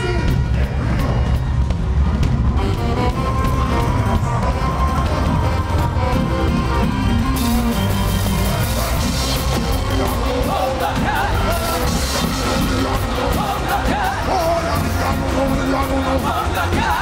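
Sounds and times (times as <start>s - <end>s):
crowd noise: 0.0s - 17.0s
live reggae band: 0.0s - 17.0s
people singing: 8.4s - 17.0s.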